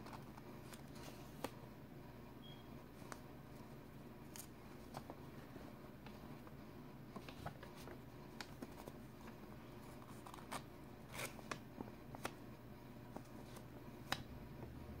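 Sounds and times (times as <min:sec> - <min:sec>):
paper pages rustling: 0:00.0 - 0:01.6, 0:04.3 - 0:06.5, 0:07.1 - 0:12.4
faint low hum: 0:00.0 - 0:15.0.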